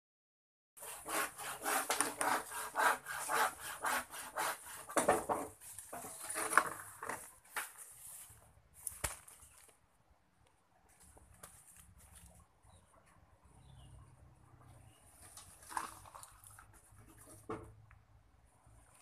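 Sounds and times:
hand saw cutting bamboo: 0:00.8 - 0:05.5.

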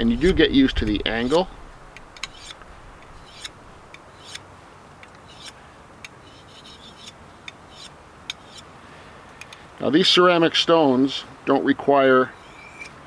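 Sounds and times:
knife scraping on whetstone: 0:00.0 - 0:00.5, 0:01.1 - 0:01.5, 0:02.2 - 0:04.4, 0:05.1 - 0:05.6, 0:06.2 - 0:08.7, 0:12.4 - 0:13.0.

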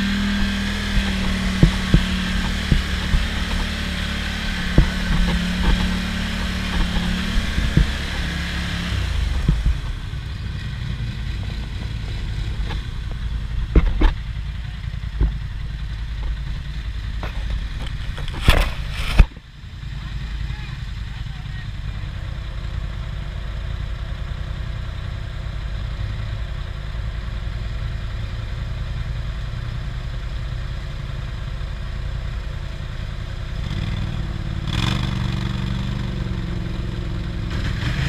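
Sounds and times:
atv engine running: 0:00.0 - 0:38.0
knocks and clatter: 0:00.4 - 0:10.2, 0:11.4 - 0:19.4.

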